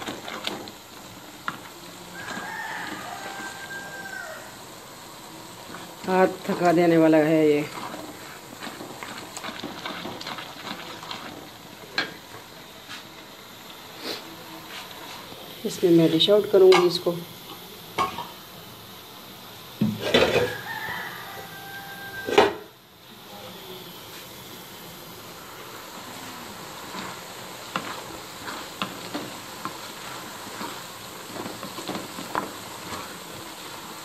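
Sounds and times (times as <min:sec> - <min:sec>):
greens sizzling in a pot: 0:00.0 - 0:34.0.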